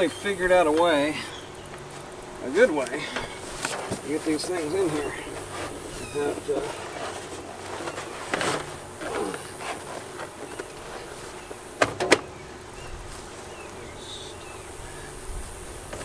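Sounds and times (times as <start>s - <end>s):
cardboard box scraping: 3.4s - 11.4s.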